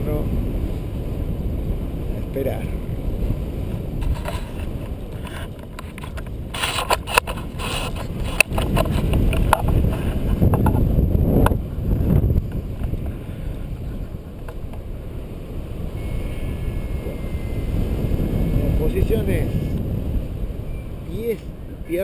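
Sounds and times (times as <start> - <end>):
wind buffeting microphone: 0.0 - 22.0
sharp clicks and knocks: 4.0 - 10.8.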